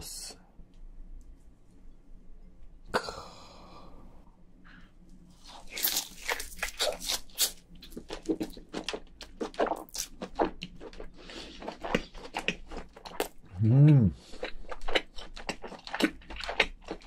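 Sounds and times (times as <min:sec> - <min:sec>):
person chewing wetly: 0:05.4 - 0:17.0.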